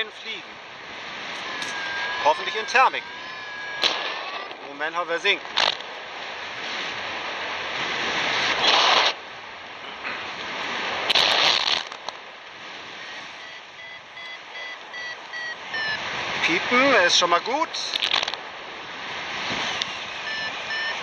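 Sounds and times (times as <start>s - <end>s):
variometer short high beeps: 13.0s - 16.5s, 19.8s - 21.0s.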